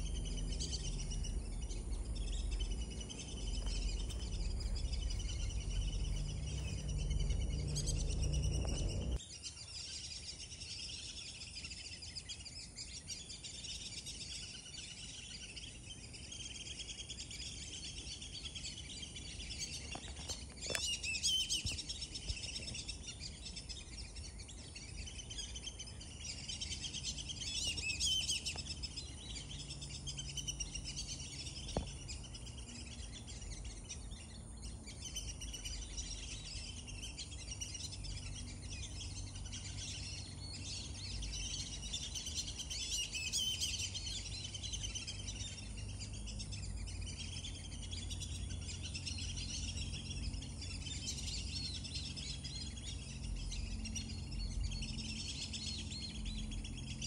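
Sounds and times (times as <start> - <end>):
ducks whistling: 0.0 - 9.2.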